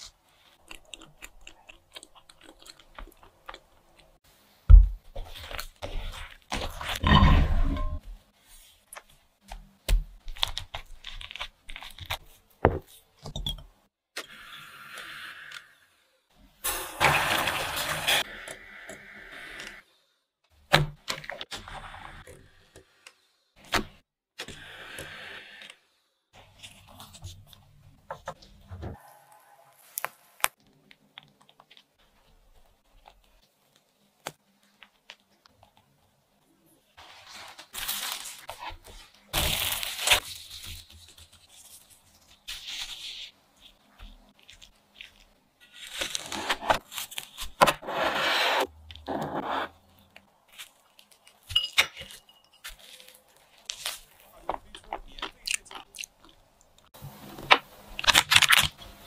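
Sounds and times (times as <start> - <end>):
rustling crinkling and tearing: 10.2 - 13.1, 37.0 - 47.6, 49.9 - 51.5, 52.1 - 57.0, 57.9 - 59.0.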